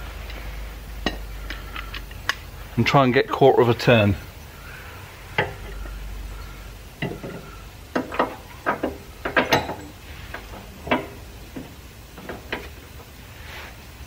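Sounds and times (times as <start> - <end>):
metal clicks and knocks: 7.0 - 12.8.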